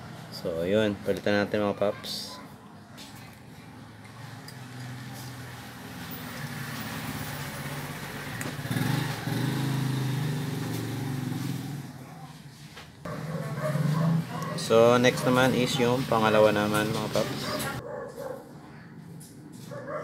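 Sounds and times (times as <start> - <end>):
motorcycle engine running: 7.3 - 12.0.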